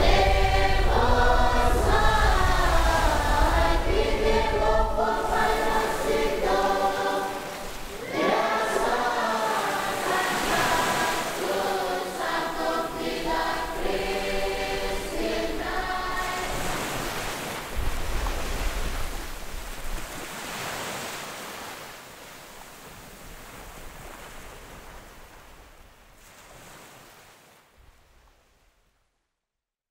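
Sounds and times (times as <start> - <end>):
low rumble: 0.0 - 6.5
choir singing: 0.0 - 17.3
steady rushing noise: 0.0 - 19.5.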